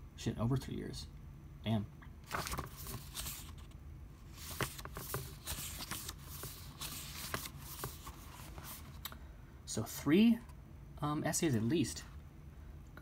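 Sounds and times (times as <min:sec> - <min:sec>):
book pages rustling: 0:02.2 - 0:09.0.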